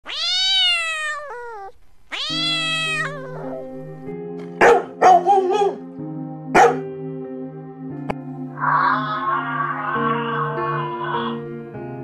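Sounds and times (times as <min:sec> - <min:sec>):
cat meowing: 0:00.0 - 0:03.7, 0:08.6 - 0:11.4
background music: 0:02.3 - 0:12.0
dog barking: 0:04.6 - 0:05.8, 0:06.5 - 0:06.9.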